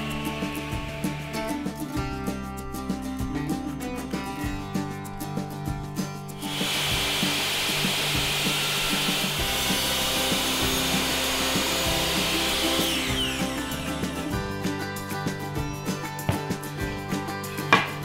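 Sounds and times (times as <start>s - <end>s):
power saw cutting wood: 0.0s - 2.0s, 6.4s - 18.0s.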